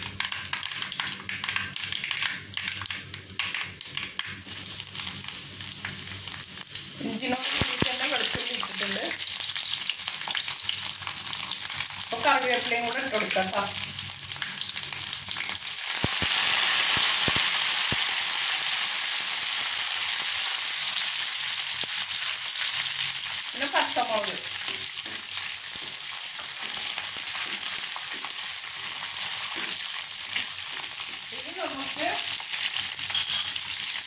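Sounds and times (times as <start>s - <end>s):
hot oil sizzling: 0.0s - 34.0s.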